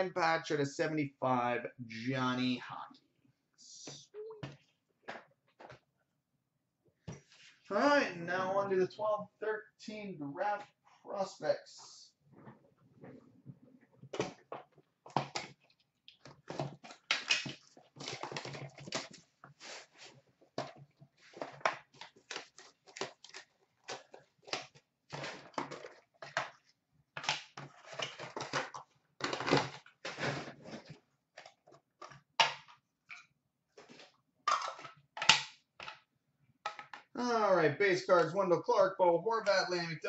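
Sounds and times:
cards and wrapper rustling: 0:15.1 - 0:26.6.

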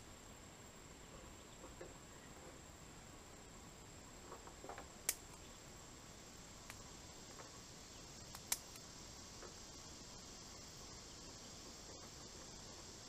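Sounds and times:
insects droning: 0:00.0 - 0:13.0
light ticks: 0:05.0 - 0:05.4, 0:06.6 - 0:07.5, 0:08.3 - 0:09.6
sharp clicks: 0:05.0 - 0:05.4, 0:06.6 - 0:06.8, 0:08.2 - 0:09.6.

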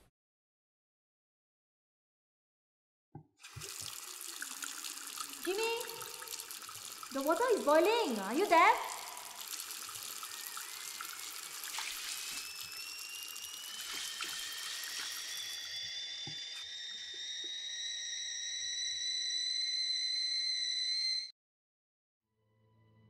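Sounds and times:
tap running into sink: 0:03.4 - 0:07.6, 0:08.9 - 0:15.3
kettle whistling: 0:03.4 - 0:21.3.

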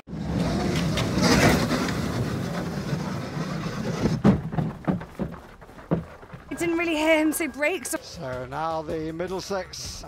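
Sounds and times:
sled runners rushing on ice: 0:00.2 - 0:08.0
sharp knocks: 0:03.9 - 0:06.6.

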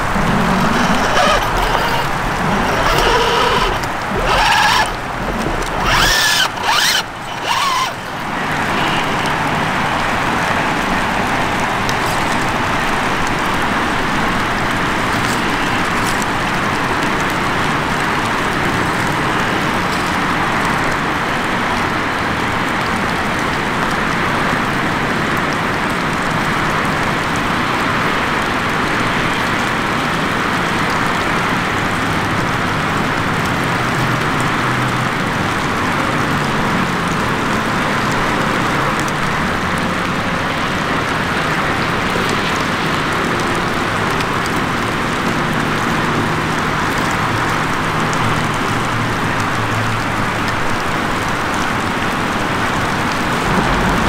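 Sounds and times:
water rushing: 0:00.0 - 0:14.3, 0:39.5 - 0:54.0.

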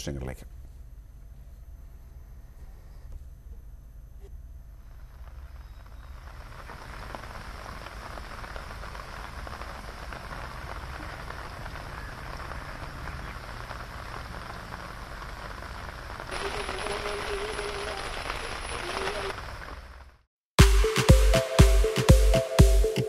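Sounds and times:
hissing water with crackle: 0:05.2 - 0:20.1.

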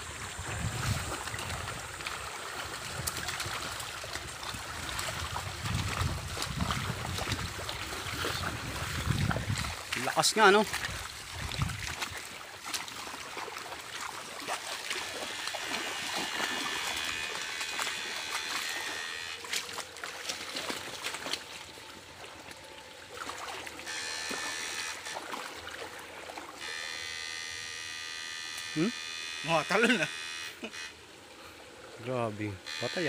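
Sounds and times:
water sloshing from wading: 0:00.0 - 0:28.3
high electric buzz: 0:14.8 - 0:19.8, 0:23.8 - 0:25.6, 0:26.5 - 0:31.0, 0:32.6 - 0:33.0.

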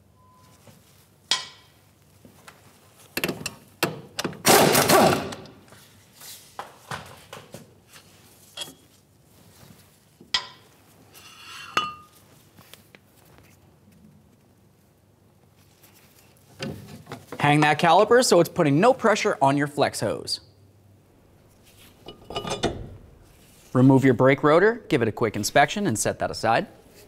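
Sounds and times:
metal brake parts clanking: 0:22.0 - 0:23.0.

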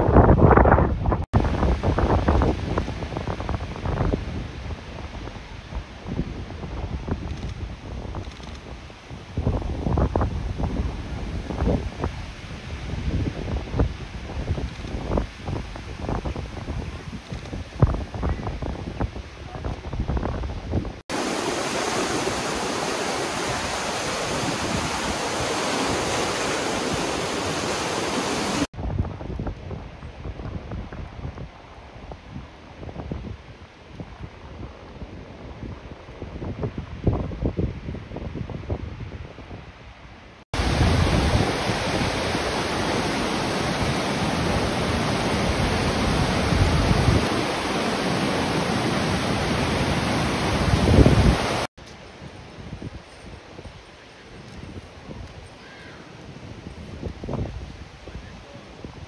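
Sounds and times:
flooded river roaring: 0:20.8 - 0:28.7, 0:40.6 - 0:51.7
turbulent stream rushing: 0:20.9 - 0:28.7, 0:40.6 - 0:51.7.

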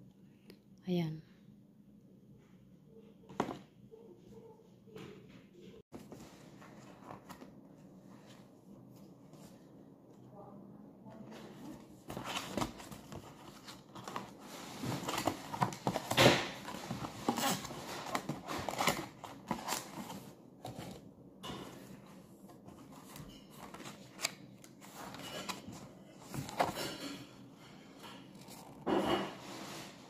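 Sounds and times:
cardboard rustling and creasing: 0:05.9 - 0:09.7, 0:11.3 - 0:21.1, 0:21.7 - 0:27.2, 0:28.2 - 0:30.0.

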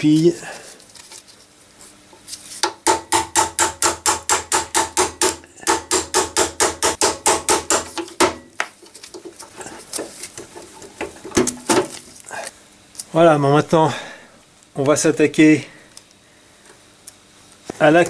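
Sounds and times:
hammer striking metal punch: 0:02.6 - 0:08.6.

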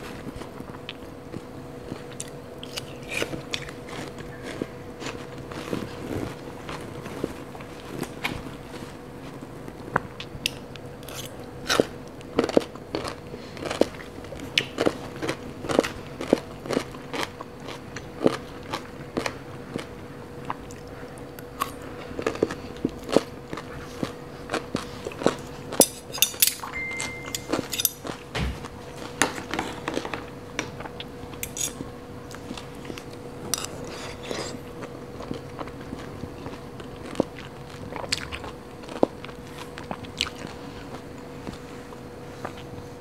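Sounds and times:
crunchy food chewing: 0:00.0 - 0:26.4, 0:27.4 - 0:43.0
faint steady hum: 0:00.0 - 0:43.0
fork and spoon clicking and scraping: 0:25.8 - 0:28.1, 0:31.4 - 0:31.8, 0:33.6 - 0:34.5.

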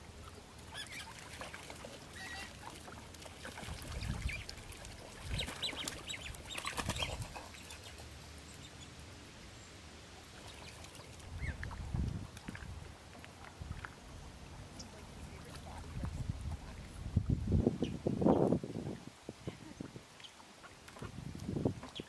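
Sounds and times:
splashing in water: 0:00.1 - 0:08.2
bird calls: 0:00.7 - 0:01.2
wings flapping: 0:03.4 - 0:08.1.

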